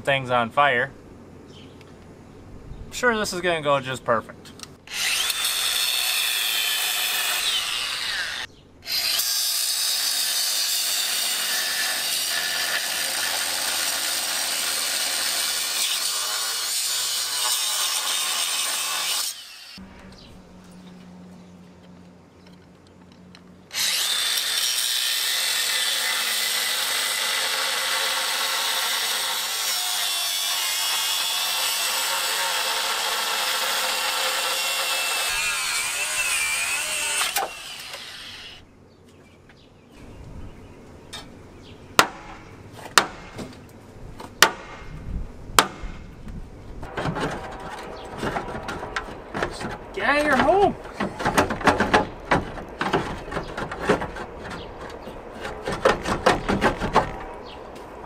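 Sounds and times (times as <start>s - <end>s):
grinder cutting steel: 4.9s - 19.8s, 23.7s - 38.6s.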